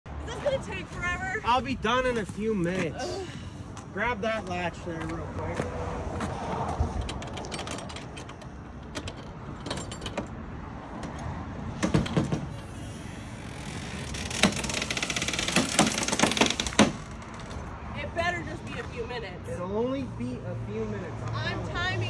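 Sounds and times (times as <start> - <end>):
ramp door rattling: 6.8 - 11.2, 11.8 - 17.7
ramp door clattering: 6.9 - 10.4, 11.8 - 17.6.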